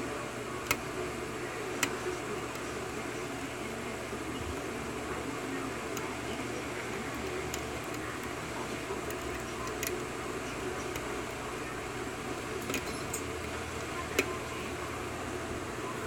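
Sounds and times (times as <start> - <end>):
steady room hum: 0.0 - 16.0.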